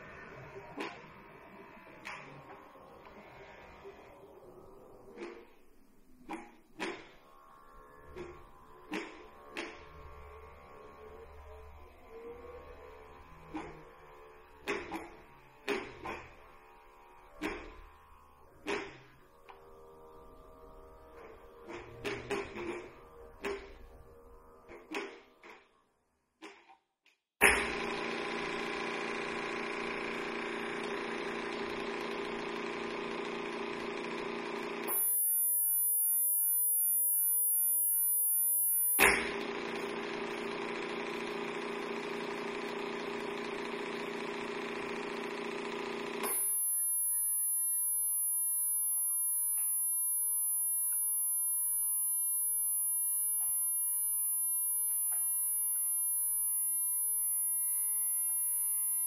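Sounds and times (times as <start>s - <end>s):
electronic sine tone drones: 0.0s - 25.2s, 27.4s - 59.0s
very high steady tones: 32.6s - 42.5s, 44.0s - 59.0s.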